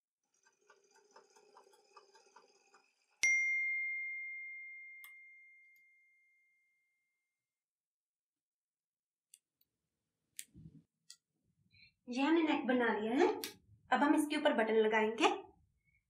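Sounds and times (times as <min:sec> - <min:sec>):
bell-like chime: 0:03.2 - 0:07.0.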